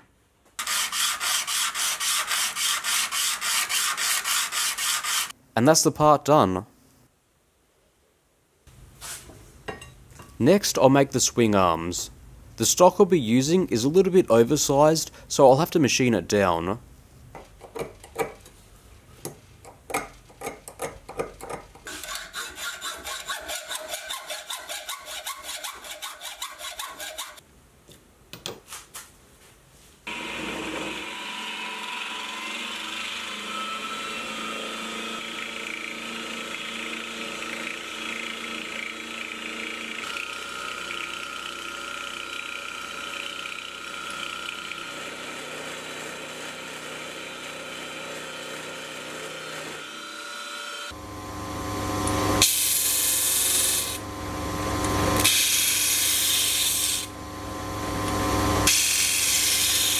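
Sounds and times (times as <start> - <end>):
rhythmic hand scraping strokes: 0.6 - 5.3, 21.9 - 27.4
milling machine whining cutting metal: 30.1 - 40.3.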